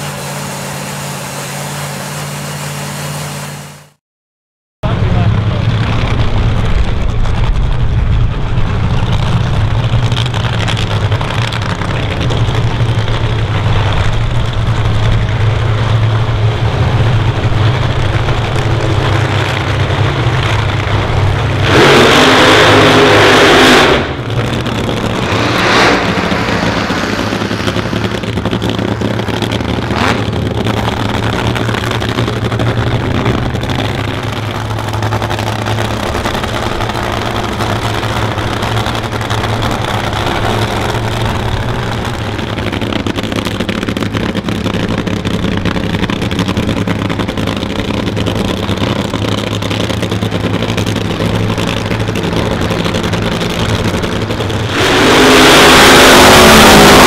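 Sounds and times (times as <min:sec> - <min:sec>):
drag racing engines idling: 0:00.0 - 0:03.9, 0:04.8 - 0:57.0
engine throttle blips: 0:04.8 - 0:57.0
engine revving loudly: 0:18.9 - 0:41.6, 0:50.4 - 0:57.0.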